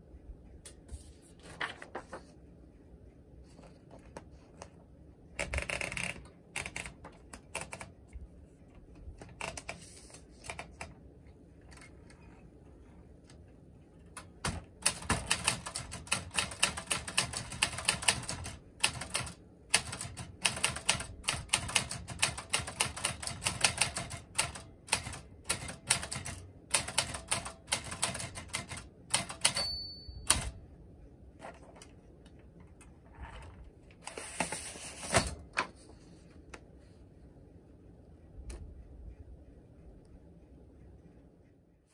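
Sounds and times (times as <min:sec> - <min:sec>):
typewriter bell ring: 0:29.2 - 0:30.5.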